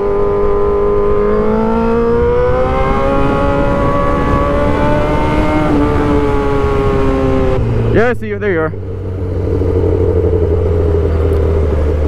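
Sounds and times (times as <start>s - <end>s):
wind noise: 0.0s - 8.2s
motorcycle engine accelerating: 0.0s - 12.0s.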